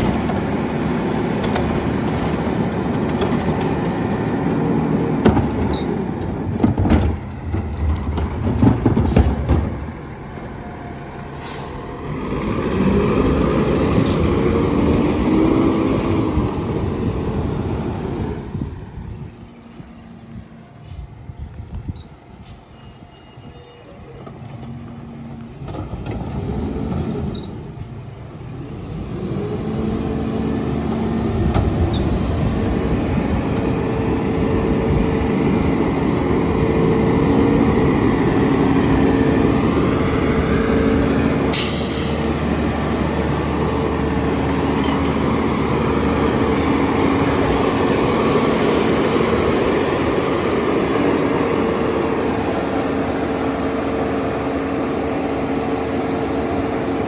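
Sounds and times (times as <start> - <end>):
diesel truck engine revving: 0.0 - 19.3, 24.9 - 57.0
cart tipper knocks and clatter: 6.5 - 9.8
air brakes hissing: 11.3 - 11.9, 20.0 - 24.2, 41.4 - 45.3.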